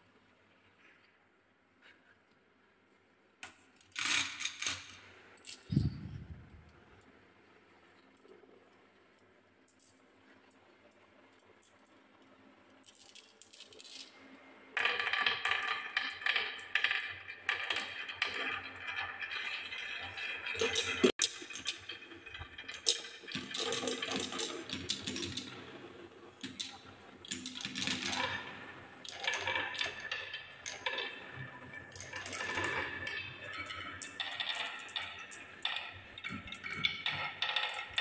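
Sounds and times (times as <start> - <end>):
marbles rolling on wooden track: 12.8 - 38.0.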